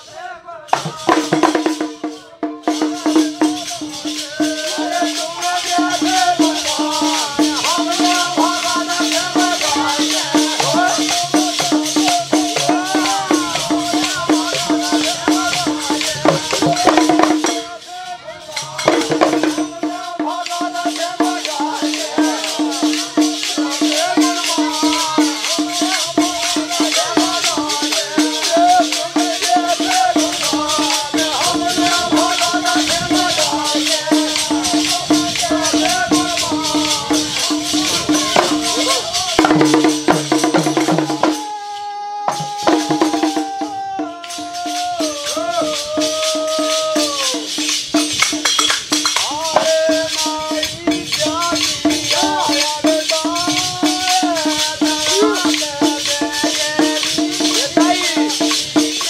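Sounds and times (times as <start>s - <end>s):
person singing: 0.0s - 48.0s, 49.2s - 59.0s
jingling metal percussion: 0.0s - 59.0s
barrel drum beating: 5.8s - 17.8s, 18.6s - 41.5s, 46.8s - 59.0s.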